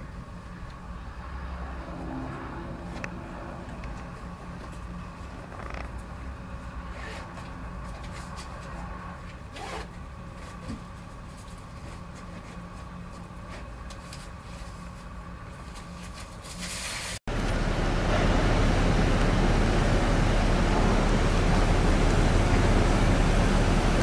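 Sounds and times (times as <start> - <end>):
floatplane engine humming: 17.3 - 24.0.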